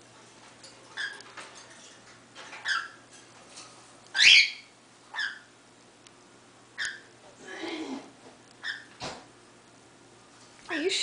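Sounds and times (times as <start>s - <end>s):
cockatiel chirping calls: 4.1s - 5.5s, 6.8s - 7.1s, 8.6s - 8.9s.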